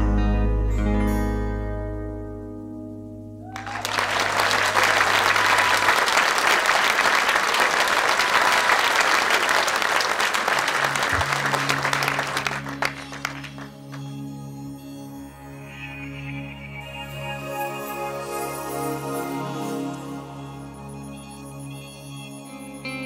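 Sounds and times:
low keyboard pad: 0:00.0 - 0:23.0
audience applauding: 0:03.5 - 0:14.2.

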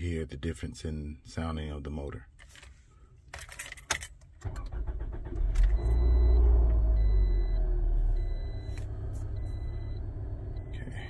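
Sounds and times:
car engine starting and idling: 0:04.3 - 0:11.0
starter cranking engine: 0:04.4 - 0:06.3.

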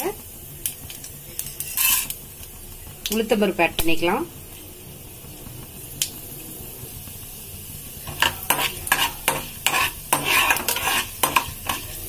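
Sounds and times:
seeds sizzling in hot oil: 0:00.0 - 0:12.0
metal ladle scraping pan: 0:01.4 - 0:02.2, 0:08.0 - 0:12.0.

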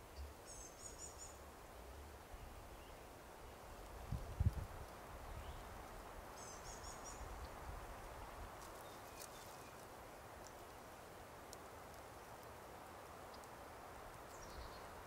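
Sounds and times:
faint steady hiss: 0:00.0 - 0:15.0
small bird chirping: 0:06.4 - 0:07.5, 0:14.2 - 0:15.0.

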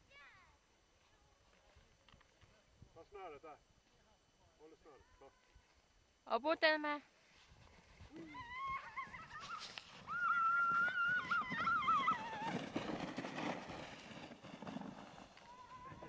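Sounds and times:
soft rustling: 0:07.1 - 0:16.0
child squealing: 0:08.2 - 0:12.6.

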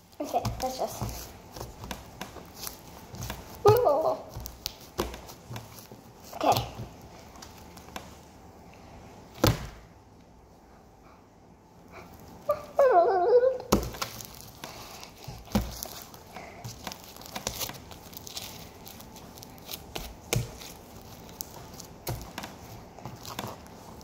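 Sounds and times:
slime crackling and squelching: 0:13.7 - 0:24.0.

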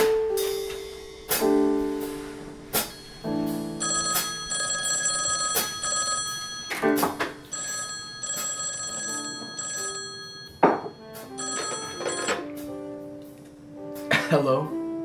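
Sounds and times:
background music: 0:00.0 - 0:15.0
telephone bell ringing: 0:02.8 - 0:12.5.

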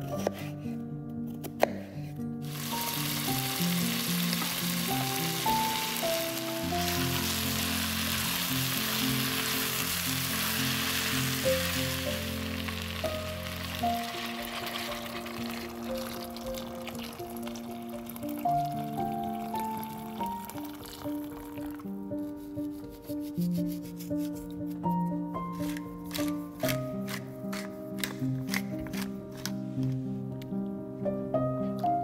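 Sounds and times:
background music: 0:00.0 - 0:32.0
vegetables sizzling in hot oil: 0:02.4 - 0:18.0.

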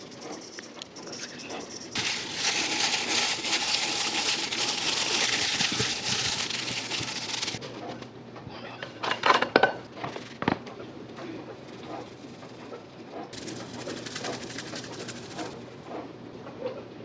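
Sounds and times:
plastic glove crinkling: 0:01.9 - 0:07.6, 0:13.4 - 0:15.6
wet squelching of fish in bowl: 0:02.0 - 0:07.6.

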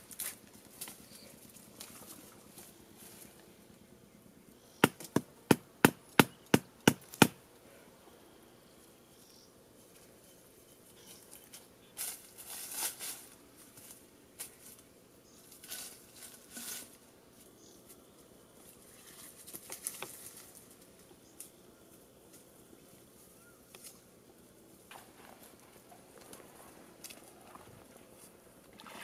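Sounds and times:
footsteps rustling dry leaves: 0:00.0 - 0:03.4, 0:11.0 - 0:21.0.

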